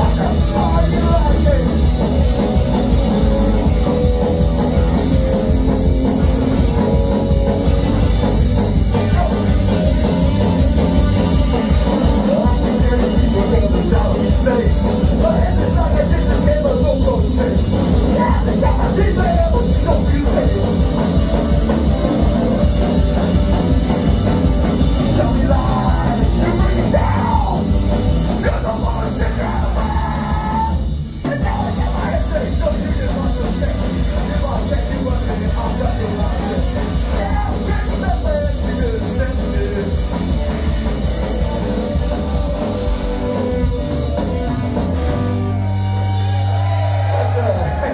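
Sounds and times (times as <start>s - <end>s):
shouted lead vocal: 0.0s - 4.4s, 11.8s - 21.1s, 25.0s - 40.1s, 46.2s - 47.9s
live rock band playing loud: 0.0s - 47.9s.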